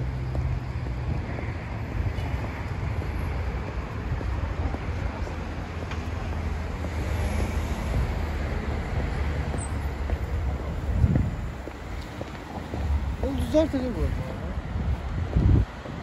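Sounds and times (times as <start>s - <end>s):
road traffic rumble: 0.0s - 16.0s
wind on microphone: 9.9s - 16.0s.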